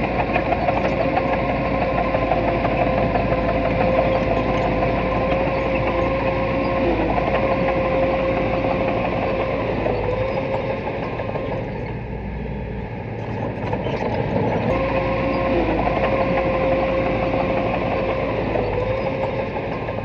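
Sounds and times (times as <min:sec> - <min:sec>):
bulldozer diesel engine running: 0:00.0 - 0:20.0
high steady whine: 0:14.6 - 0:20.0.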